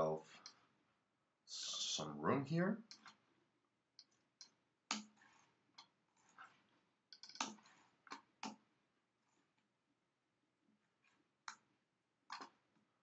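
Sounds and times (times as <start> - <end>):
keyboard and mouse clicks: 2.9 - 3.2, 4.0 - 6.5, 7.1 - 8.6, 12.3 - 12.6.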